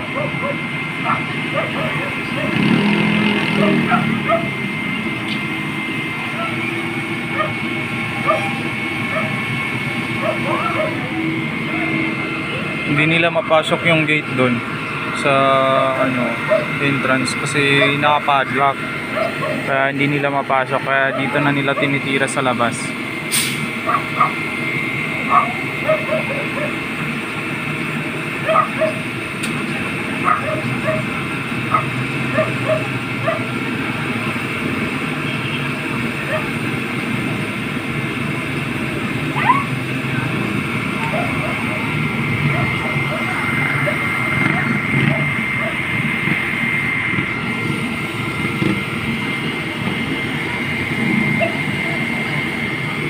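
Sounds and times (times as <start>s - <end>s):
dog barking: 0.0s - 2.6s, 3.6s - 4.6s, 6.4s - 6.6s, 7.4s - 7.6s, 8.2s - 9.4s, 10.2s - 11.2s, 16.4s - 16.7s, 19.1s - 19.7s, 21.1s - 21.9s, 23.8s - 24.4s, 25.3s - 26.8s, 28.4s - 29.1s, 30.2s - 31.1s, 31.7s - 33.5s, 36.3s - 36.6s, 39.3s - 39.7s, 41.0s - 41.9s, 42.5s - 45.8s, 51.4s - 51.6s
fire truck engines humming: 0.0s - 53.0s
high pump whine: 0.0s - 53.0s.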